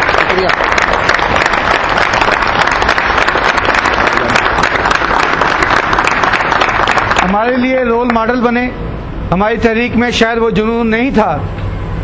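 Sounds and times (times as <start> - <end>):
crowd clapping: 0.0 - 8.4.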